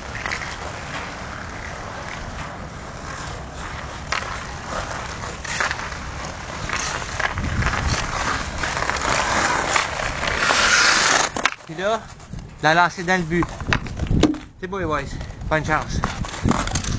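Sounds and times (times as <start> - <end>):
hockey stick striking puck: 0.0 - 11.7, 13.4 - 14.6
skate blades scraping ice: 0.0 - 14.2, 15.2 - 16.9.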